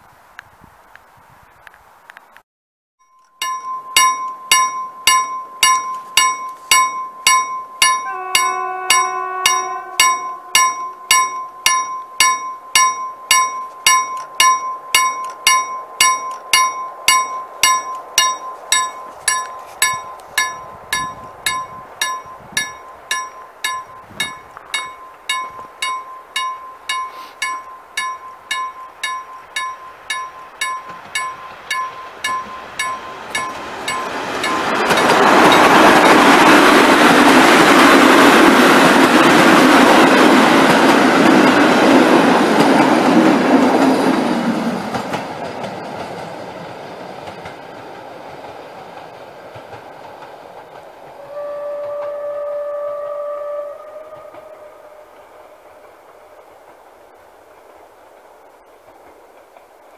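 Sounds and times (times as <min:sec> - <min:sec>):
level crossing bell ringing: 0:03.0 - 0:36.8
train horn: 0:07.9 - 0:11.1, 0:51.1 - 0:56.4.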